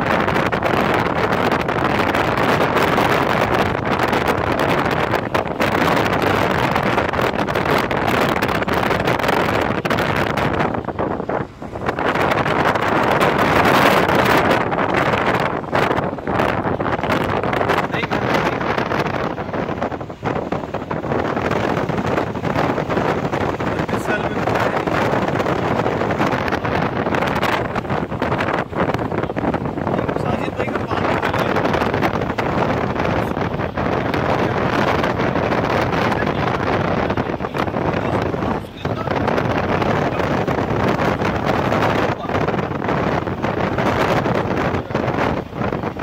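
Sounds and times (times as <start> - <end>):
moving vehicle rumble: 0.0 - 46.0
wind buffeting microphone: 0.0 - 46.0.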